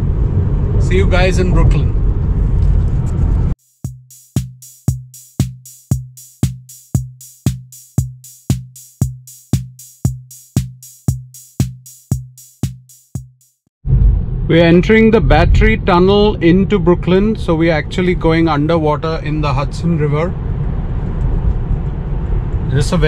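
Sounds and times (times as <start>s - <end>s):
car road rumble: 0.0s - 3.6s, 13.9s - 23.0s
drum machine beat with bass drum: 3.6s - 13.7s.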